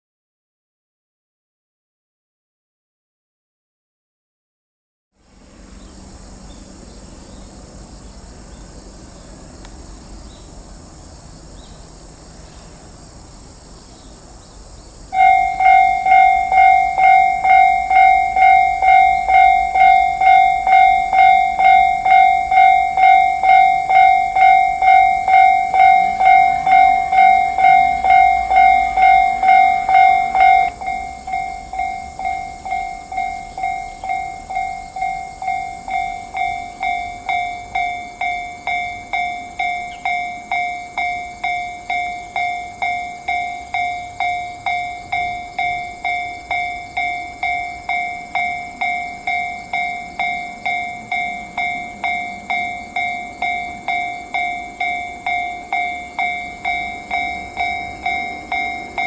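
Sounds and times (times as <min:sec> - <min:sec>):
level crossing warning bell: 0:15.1 - 0:59.0.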